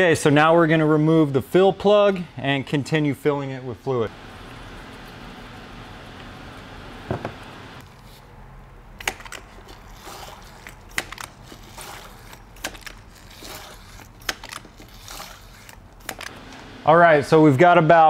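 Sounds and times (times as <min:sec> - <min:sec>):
hand pump click and squish: 0:10.6 - 0:11.4, 0:12.3 - 0:13.1.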